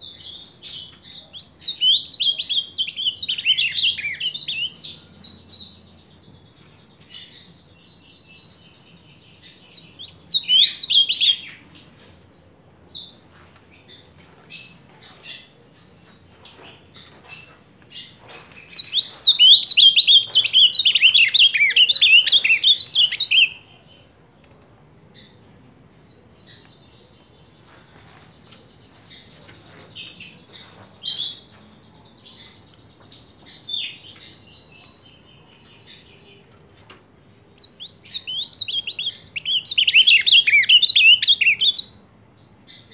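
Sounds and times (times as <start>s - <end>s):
bird singing warbling phrases: 0.0s - 5.9s, 7.0s - 13.3s, 18.8s - 24.2s, 37.4s - 42.0s.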